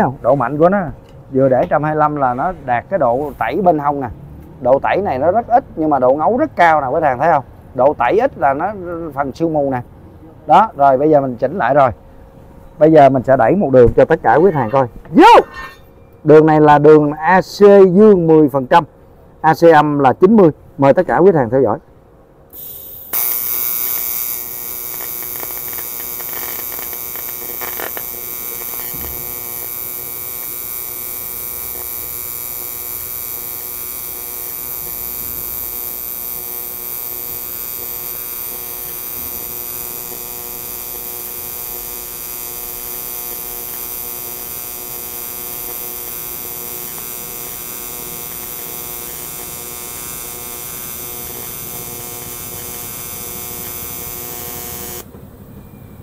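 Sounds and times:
welding arc buzzing: 22.5 - 55.1.

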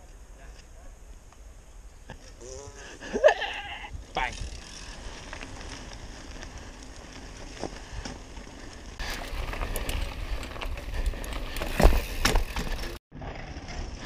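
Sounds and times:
bike tyres crunching on gravel: 3.9 - 14.0
front wheel thumping down: 11.3 - 13.0.

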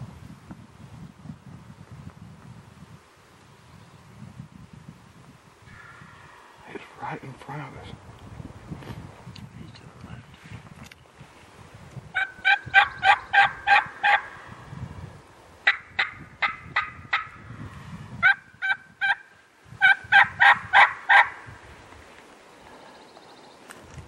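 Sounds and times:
turkey yelping: 12.2 - 14.4, 15.6 - 17.4, 18.2 - 21.4.

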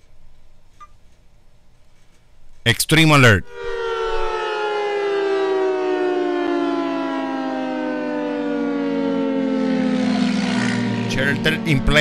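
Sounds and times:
warning siren wailing: 3.2 - 12.0.

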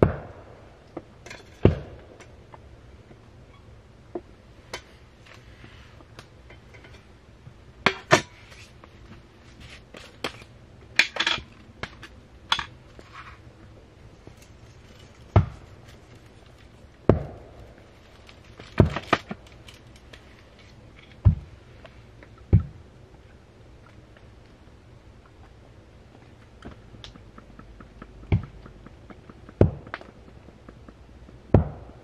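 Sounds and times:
heavy thuds: 15.2 - 15.8, 21.2 - 21.6.

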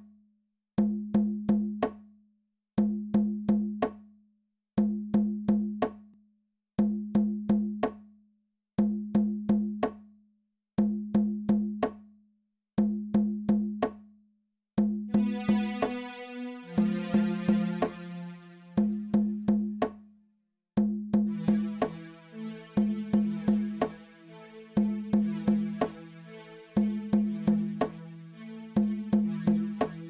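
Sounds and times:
looping pitched percussion knocks: 15.1 - 19.8, 21.3 - 30.0.

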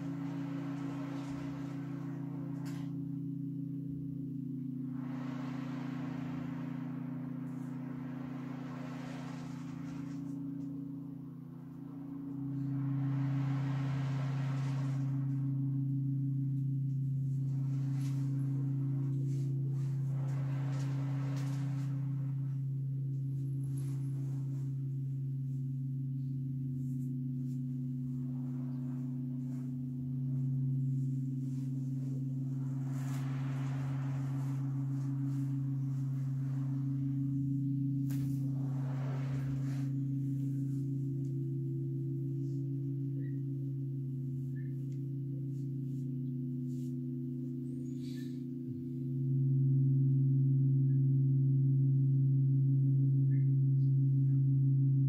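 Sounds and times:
crystal singing bowls: 0.0 - 55.0.

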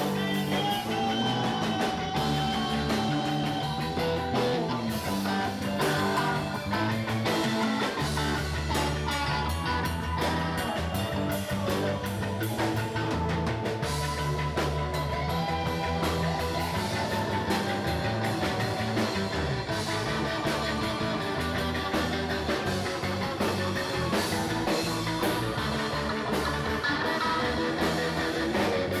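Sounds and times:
electric bass: 0.0 - 29.0
keyboard playing: 0.0 - 29.0.

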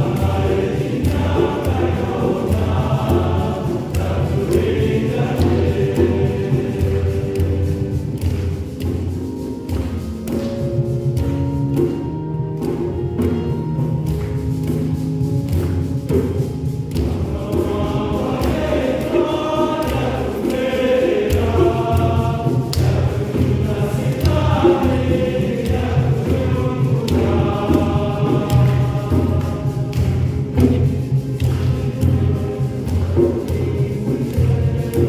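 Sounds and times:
group of voices singing: 0.0 - 9.4, 16.9 - 35.0
drums beating: 0.0 - 35.0.

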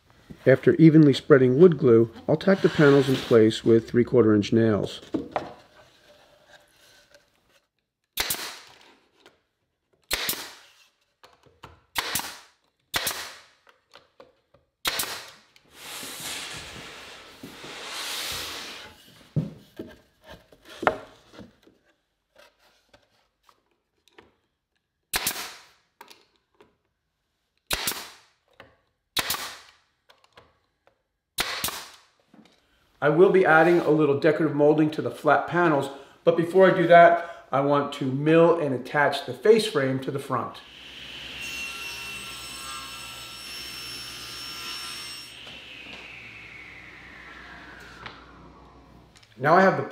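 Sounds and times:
pneumatic nailer shots: 8.2 - 8.8, 10.1 - 10.7, 11.9 - 13.6, 14.8 - 15.4, 25.1 - 25.7, 27.7 - 28.2, 29.2 - 29.7, 31.4 - 32.0.

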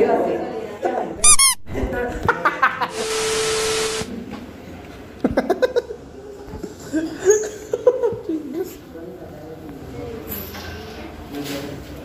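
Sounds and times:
loud hiss with low tone: 2.8 - 4.2.

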